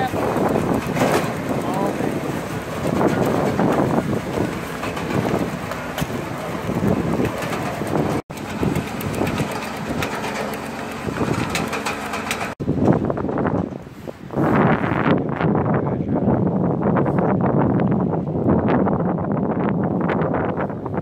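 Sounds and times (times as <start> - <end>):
conveyor engine drone: 0.0 - 12.6
wind buffeting microphone: 0.0 - 21.0.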